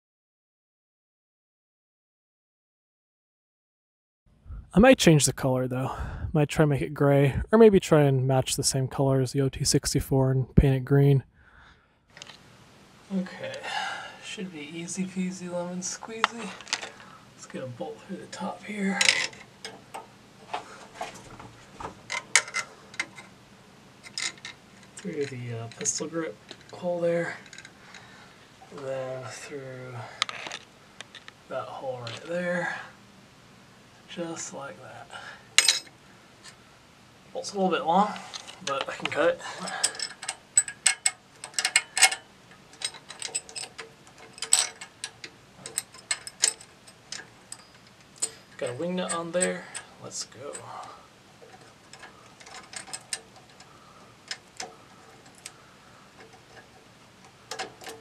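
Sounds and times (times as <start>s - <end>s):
metallic clicks and scrapes: 18.9s - 23.4s, 24.0s - 26.8s, 30.2s - 31.4s, 38.1s - 58.0s.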